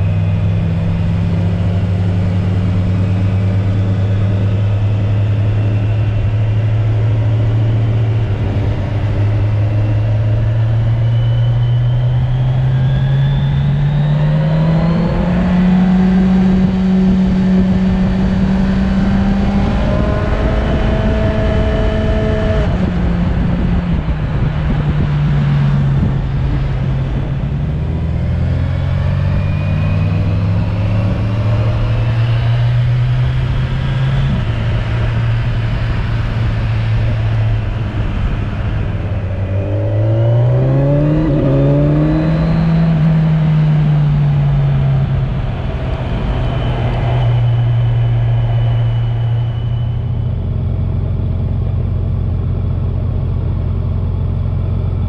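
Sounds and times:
motorcycle engine: 0:00.0 - 0:55.0.

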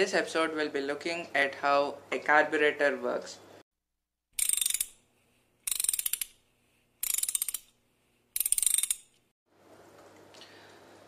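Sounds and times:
ratchet wrench clicking: 0:04.4 - 0:05.0, 0:05.6 - 0:06.4, 0:07.0 - 0:07.8, 0:08.4 - 0:09.2.

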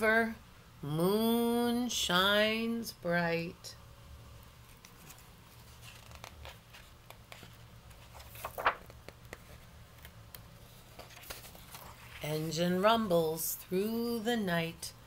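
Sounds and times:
low room hum: 0:00.0 - 0:15.0
book pages rustling: 0:04.6 - 0:12.8.

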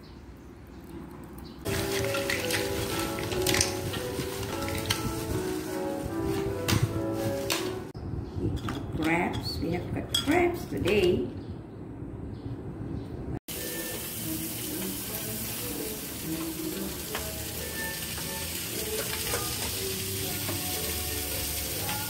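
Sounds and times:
crabs sizzling on a grill: 0:01.7 - 0:05.9, 0:13.5 - 0:22.0.

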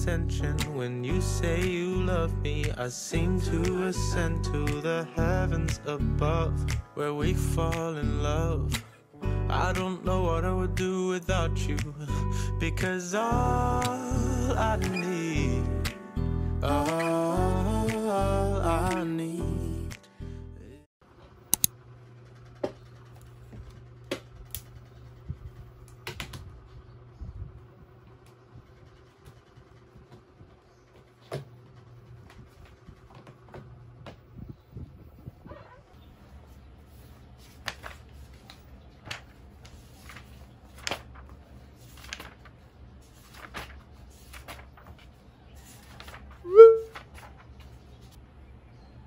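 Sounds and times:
tablet and stand clicking on desk: 0:21.5 - 0:21.7
low steady hum: 0:31.7 - 0:49.0
book pages rustling: 0:36.2 - 0:48.2.

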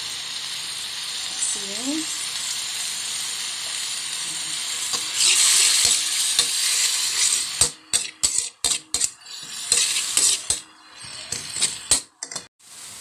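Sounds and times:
meat sizzling in a pan: 0:00.0 - 0:13.0
spatula scraping pan: 0:04.8 - 0:12.5.

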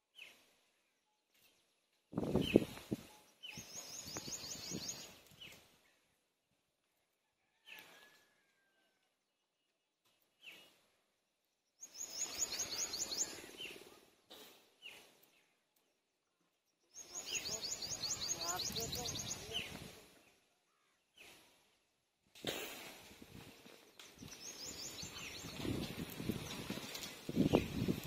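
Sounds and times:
bird chirps: 0:00.1 - 0:06.2, 0:11.6 - 0:21.4, 0:23.4 - 0:27.9.

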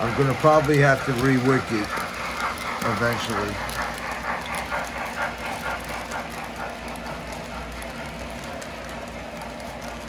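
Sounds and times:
model train wheels rumbling: 0:00.0 - 0:10.0.

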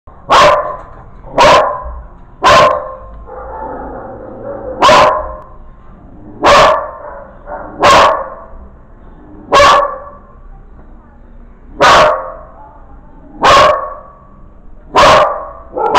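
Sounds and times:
dog barking: 0:00.2 - 0:03.9, 0:04.6 - 0:05.5, 0:06.4 - 0:08.5, 0:09.5 - 0:10.3, 0:11.8 - 0:12.5, 0:13.4 - 0:14.2, 0:14.9 - 0:15.9.

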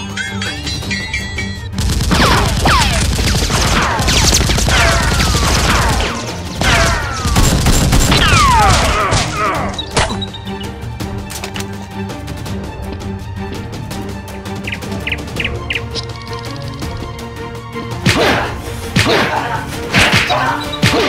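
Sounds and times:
rapid gunfire: 0:01.8 - 0:09.0.

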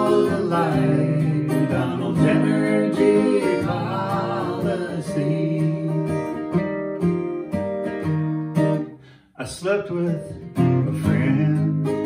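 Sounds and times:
person singing: 0:00.0 - 0:06.6, 0:09.4 - 0:12.0
acoustic guitar strumming: 0:00.0 - 0:12.0.

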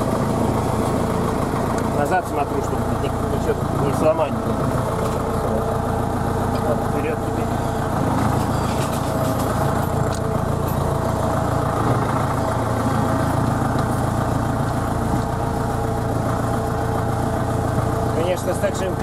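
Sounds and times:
tractor engine running: 0:00.0 - 0:19.0
light rattles: 0:04.8 - 0:12.8.

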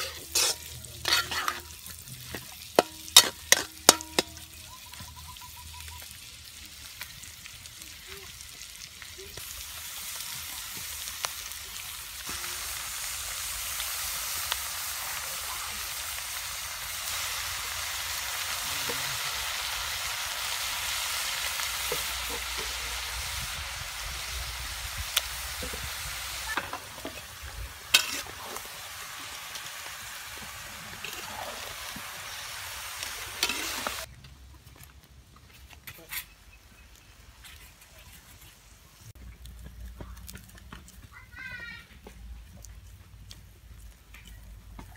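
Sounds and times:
meat sizzling in a wok: 0:00.0 - 0:34.1.

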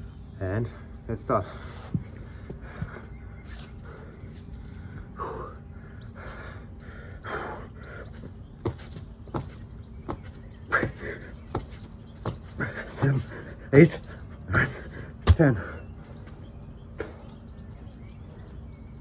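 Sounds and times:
heavy breathing: 0:00.7 - 0:08.4, 0:12.4 - 0:17.4.

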